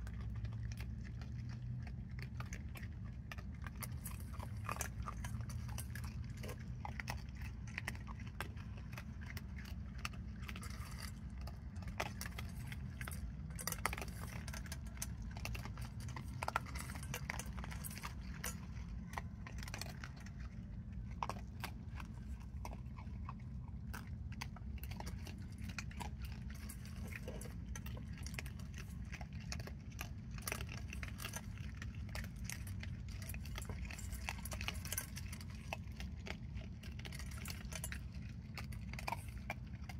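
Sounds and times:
animals crunching dry food: 0.0 - 39.9
steady low hum: 0.0 - 39.9
clinking against metal bowl: 11.8 - 20.1.

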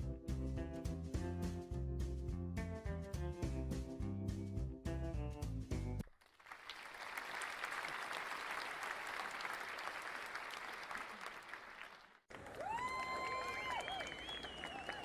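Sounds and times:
crowd applause: 6.2 - 15.0.

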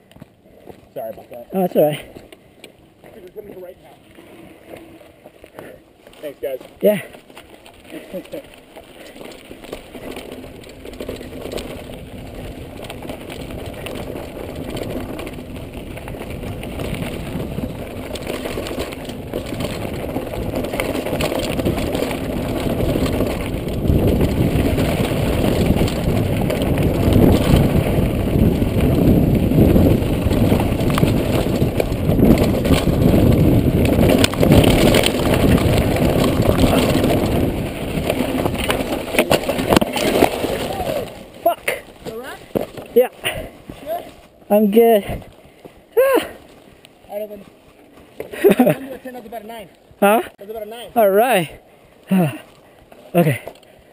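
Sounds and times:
tyres crunching over rocky dirt: 0.0 - 53.9
wind rushing over microphone: 10.0 - 42.0.

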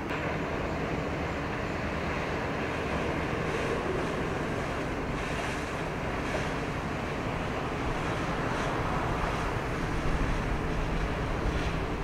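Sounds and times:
wind noise on microphone: 1.6 - 12.0
washing water: 2.5 - 12.0.

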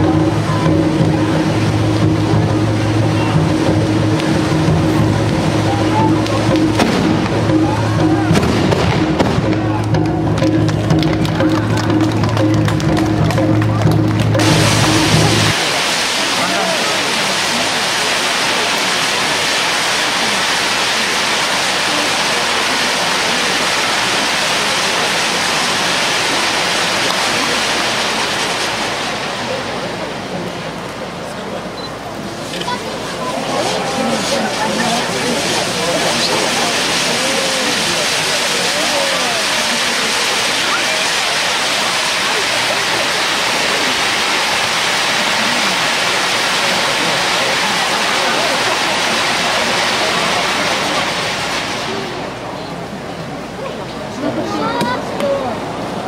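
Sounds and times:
fireworks rushing hiss: 0.0 - 11.6, 14.4 - 56.0.

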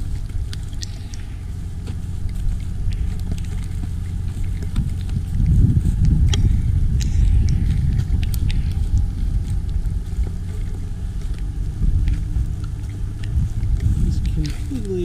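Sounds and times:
truck engine rumbling: 0.0 - 15.0
sharp clicks: 0.5 - 1.4.

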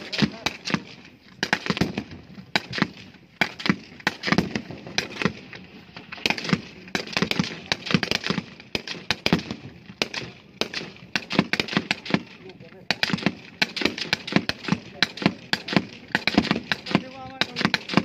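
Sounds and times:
rifle gunfire: 0.0 - 18.0.

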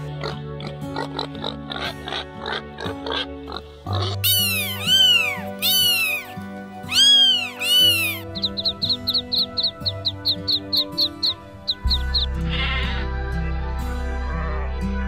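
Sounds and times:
pigs grunting: 0.0 - 5.4
pigs squealing: 0.0 - 13.0
background music: 0.0 - 15.0.

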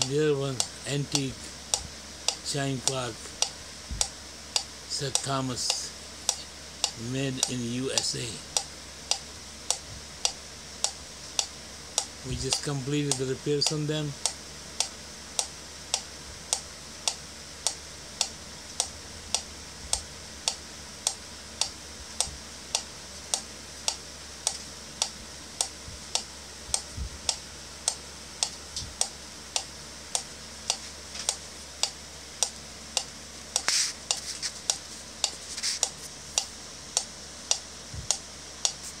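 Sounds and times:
metronome ticking: 0.0 - 17.2.

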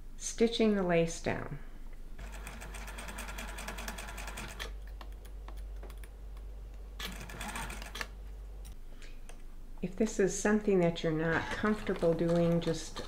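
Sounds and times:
sewing machine stitching: 2.2 - 4.7, 7.0 - 8.1, 11.3 - 13.0.

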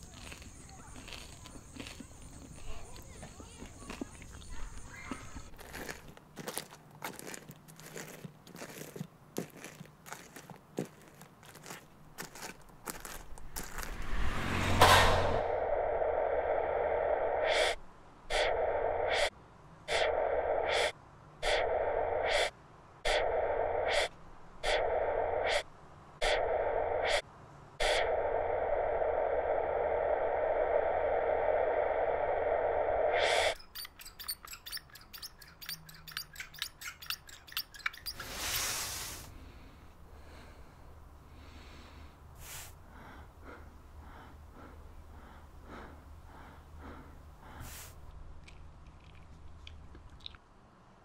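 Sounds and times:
short whoosh: 13.8 - 19.3
buzzing drone: 23.1 - 25.6, 26.2 - 27.2.

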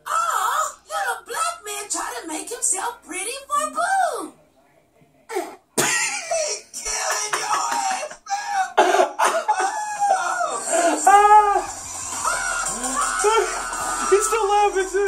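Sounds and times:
man laughing hard: 7.4 - 11.3.

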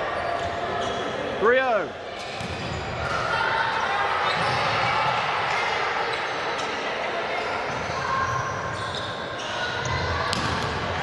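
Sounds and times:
indistinct voices in sports hall: 0.0 - 11.0.

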